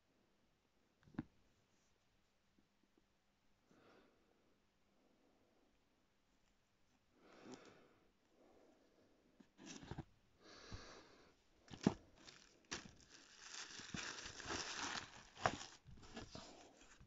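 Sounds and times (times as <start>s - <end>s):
paper and plastic rustling: 11.7s - 17.0s.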